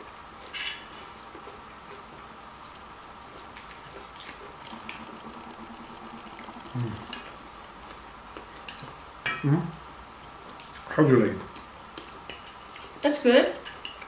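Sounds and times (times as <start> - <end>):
wet chewing: 1.3 - 9.0
hum-like voice sound: 4.7 - 7.2
cutlery clicking on plates: 12.0 - 12.9, 13.6 - 14.0.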